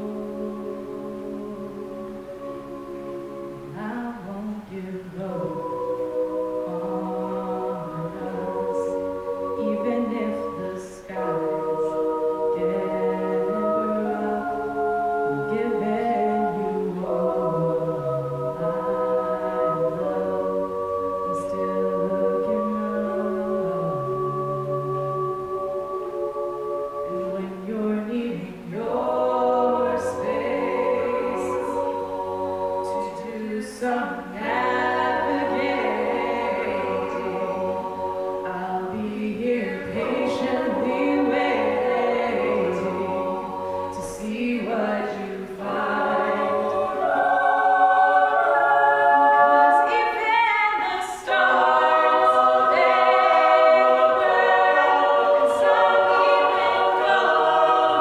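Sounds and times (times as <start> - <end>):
woman singing solo: 0.0 - 18.9
backing vocal harmonies: 0.0 - 58.0.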